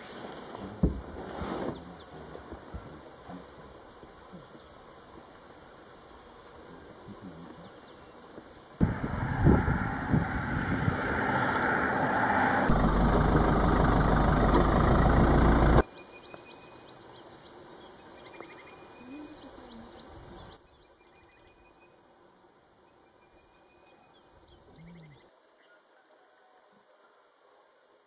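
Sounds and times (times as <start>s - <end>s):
insect calls: 1.7s - 26.0s
vehicle engine rumbling: 8.8s - 15.8s
faint bird calls: 15.8s - 22.0s, 23.1s - 27.3s.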